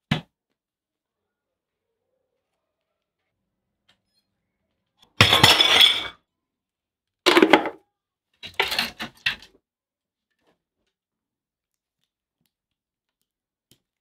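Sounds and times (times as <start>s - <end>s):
household objects clattering: 5.2s - 6.2s, 7.3s - 7.8s, 8.4s - 9.6s.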